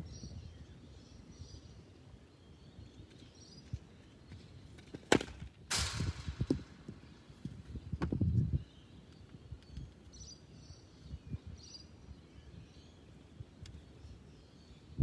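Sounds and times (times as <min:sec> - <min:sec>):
cricket bat striking ball: 0:05.1 - 0:06.7.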